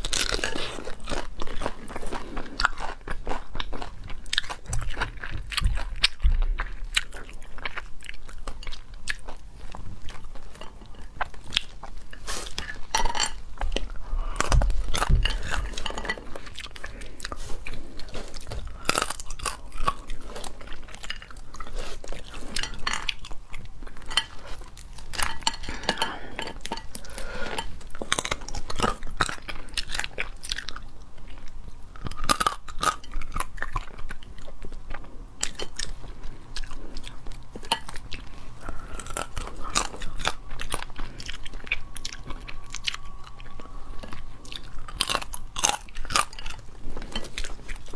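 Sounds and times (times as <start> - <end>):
biting and chewing: 0.0 - 47.9.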